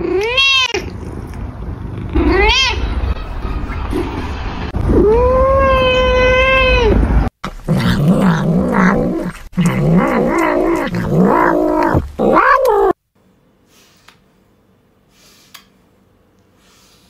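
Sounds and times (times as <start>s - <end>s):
cat meowing: 2.1s - 3.0s, 4.9s - 7.0s, 8.7s - 13.0s
cat chewing grass: 7.8s - 12.0s.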